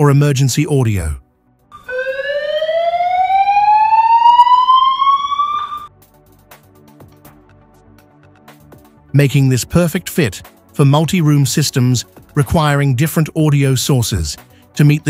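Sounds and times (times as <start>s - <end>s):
rising emergency siren: 1.7s - 6.0s.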